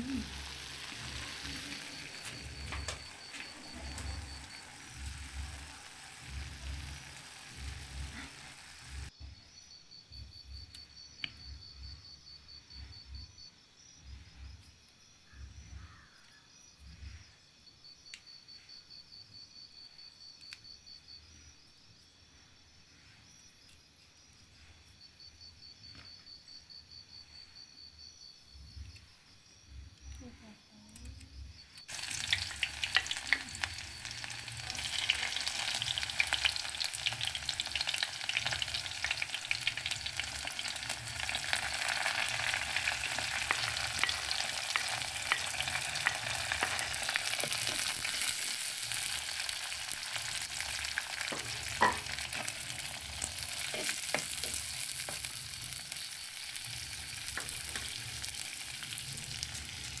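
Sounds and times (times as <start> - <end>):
onions sizzling in hot oil: 0.0 - 9.1, 31.8 - 60.0.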